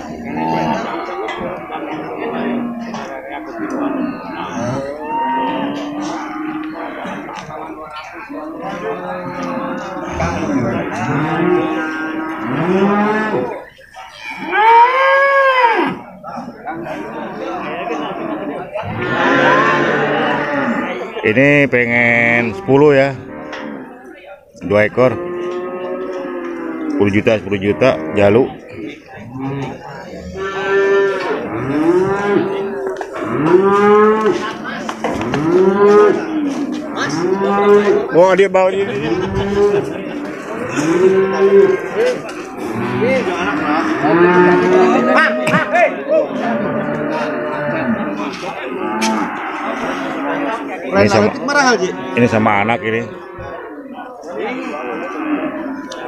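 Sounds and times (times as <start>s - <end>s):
young water buffalo bawling: 14.2s - 16.0s.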